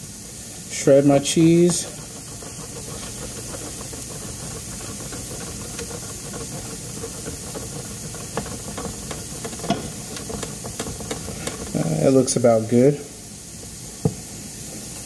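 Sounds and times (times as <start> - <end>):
pan sizzling: 0.0 - 15.0
cheese grating on grater: 0.7 - 12.4.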